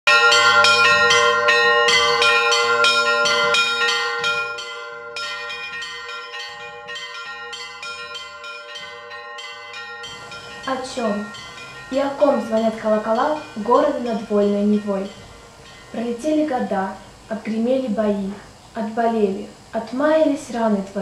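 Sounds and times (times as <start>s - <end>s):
small church bells pealing: 0.1s - 17.7s
large bell humming: 0.1s - 18.6s.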